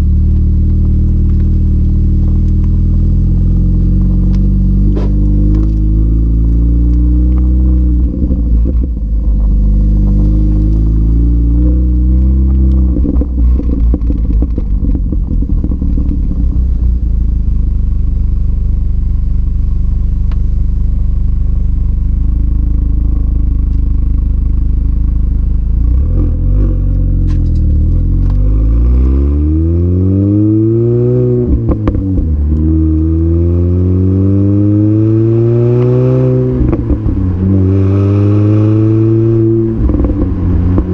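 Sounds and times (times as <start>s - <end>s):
car engine and exhaust revving: 0.0s - 40.9s
engine clatter: 12.4s - 20.5s.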